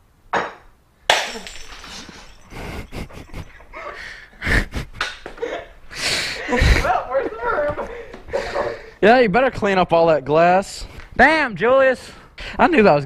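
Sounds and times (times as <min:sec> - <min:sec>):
glass bottle smashing: 0:01.1 - 0:03.8
broken glass clinking: 0:01.1 - 0:04.0.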